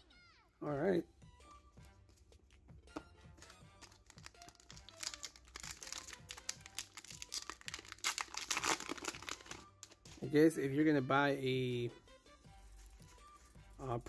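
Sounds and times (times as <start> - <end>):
background music with steady beat: 0.0 - 14.0
foil wrapper crinkling: 3.4 - 10.1.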